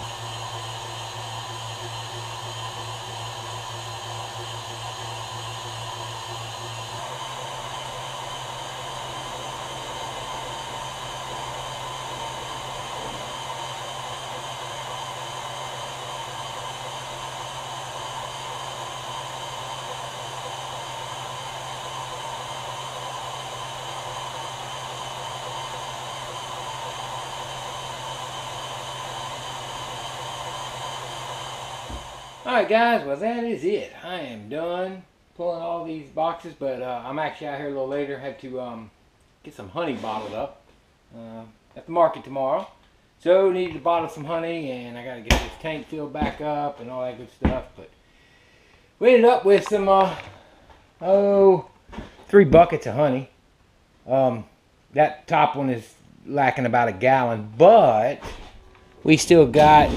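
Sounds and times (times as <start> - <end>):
air conditioner running: 57.5 - 59.9.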